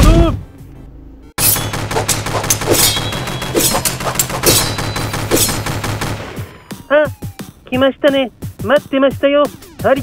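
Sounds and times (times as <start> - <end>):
rapid machine gun fire: 1.6 - 6.5.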